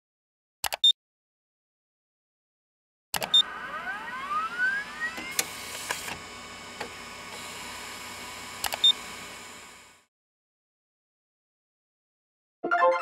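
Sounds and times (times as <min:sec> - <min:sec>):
sharp mechanical clicks: 0:03.2 - 0:03.4, 0:08.6 - 0:09.0
milling machine motor whine: 0:03.2 - 0:10.1.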